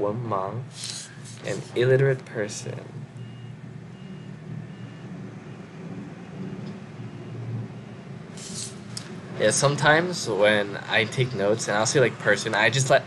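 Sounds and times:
low room rumble: 0.0 - 13.0
short hiss: 0.7 - 1.7, 8.4 - 9.1.

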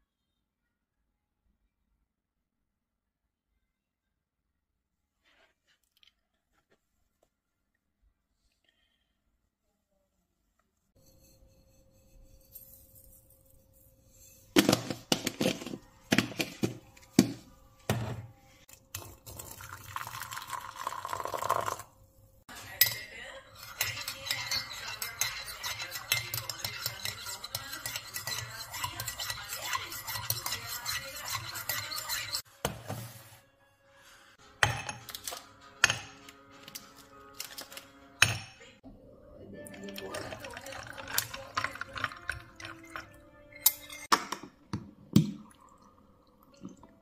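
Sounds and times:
spoon stirring in mug: 11.0 - 17.2, 18.7 - 21.8, 22.5 - 32.5, 39.7 - 44.1
water pouring into mug: 19.0 - 21.9, 39.7 - 43.2, 45.2 - 47.0
spoon and jar clinking on mug: 22.8 - 32.4, 39.8 - 44.2.

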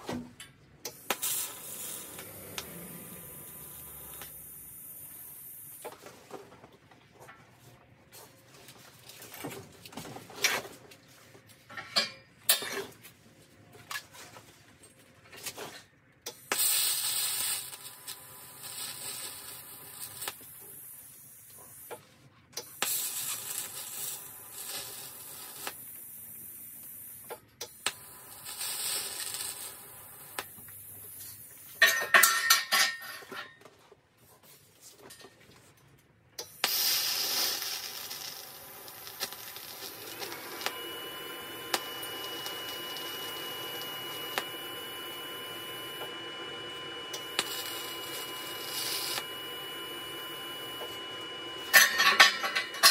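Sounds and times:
electric arc welding hiss: 0.9 - 5.9, 16.3 - 22.0, 22.6 - 31.8, 36.4 - 52.9.

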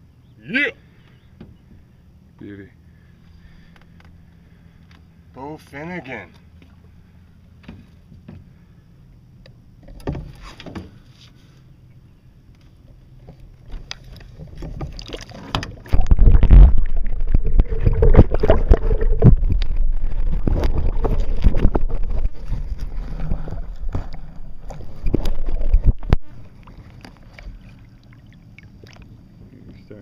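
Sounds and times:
muffled underwater sloshing: 12.8 - 30.0.

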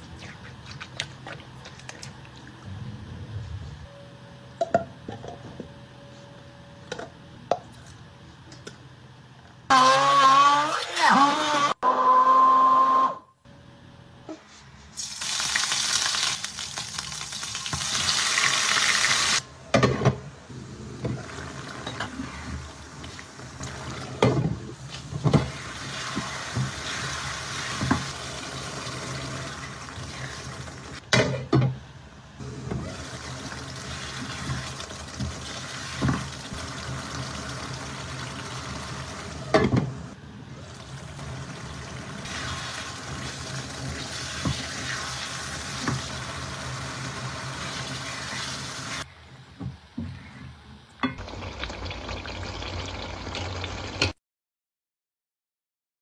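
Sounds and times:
curry sizzling and bubbling: 15.0 - 19.4, 32.8 - 39.6, 40.6 - 49.1, 51.2 - 54.2.

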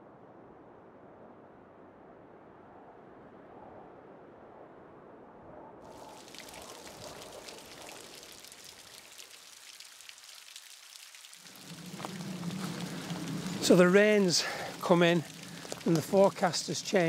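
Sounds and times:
rain falling: 5.9 - 17.0
low steady hum: 11.4 - 17.0.

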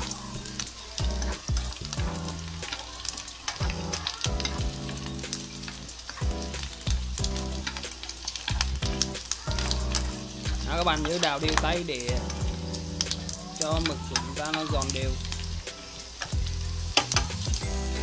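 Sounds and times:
chopsticks stirring in pan: 0.0 - 18.0
squid sizzling in hot oil: 0.0 - 18.0.

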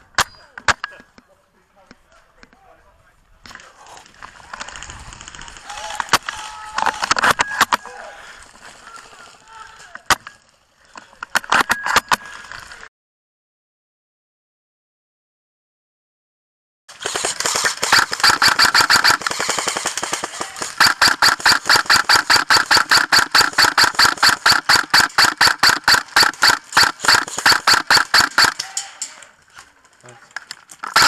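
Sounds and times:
airsoft rifle rapid fire: 16.9 - 28.8.

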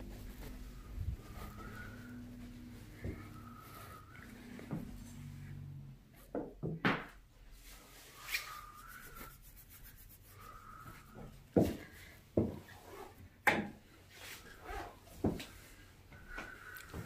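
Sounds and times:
rubbing and handling noises: 0.0 - 6.3, 7.5 - 13.3.

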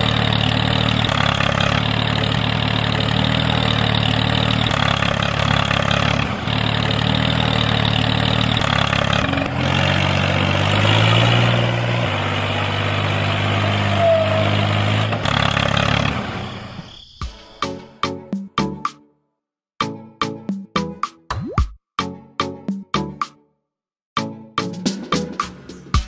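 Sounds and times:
tractor engine running: 0.0 - 16.9.

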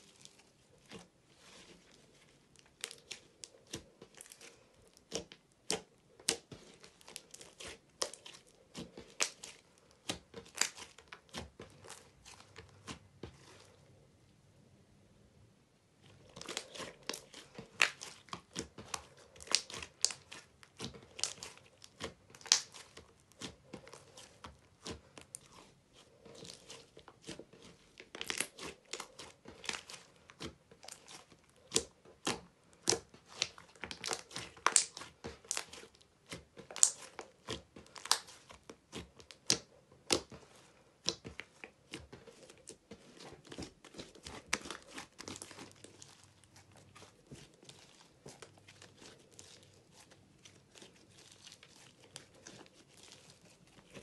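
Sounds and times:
slime clicking and popping: 16.4 - 20.4, 21.1 - 23.5, 31.7 - 38.4.

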